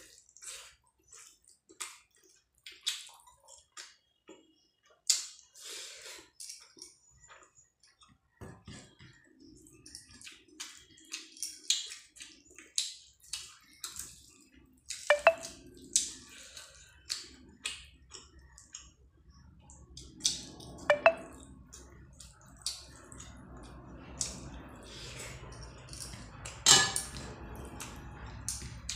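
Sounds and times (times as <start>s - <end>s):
wet chewing and smacking: 0.0s - 5.6s, 6.2s - 20.6s.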